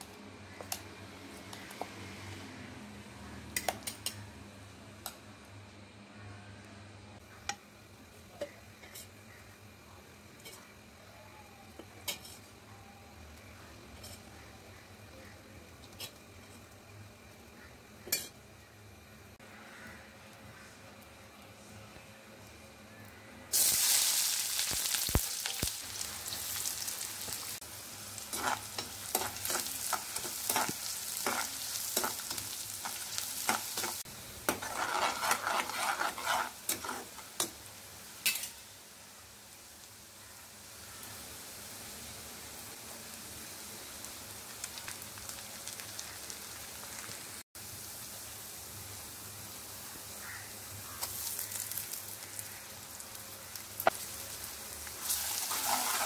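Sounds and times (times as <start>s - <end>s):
onions sizzling in hot oil: 7.4s - 21.4s, 22.5s - 56.0s
metal spatula scraping and clattering: 12.0s - 12.5s, 28.3s - 37.6s, 55.1s - 56.0s.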